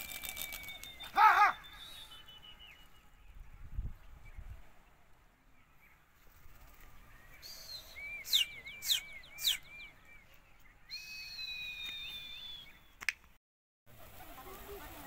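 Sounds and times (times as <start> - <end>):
long falling whistle: 10.9 - 12.8.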